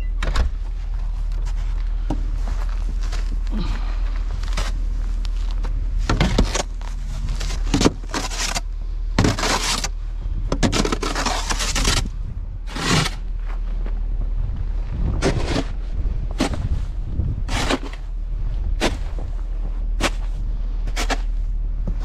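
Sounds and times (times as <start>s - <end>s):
steady low hum: 0.0s - 22.0s
snow shovel scraping snow: 6.2s - 8.6s, 9.2s - 9.9s, 10.6s - 12.1s, 12.7s - 13.3s, 15.2s - 15.8s, 17.5s - 18.0s, 20.0s - 21.4s.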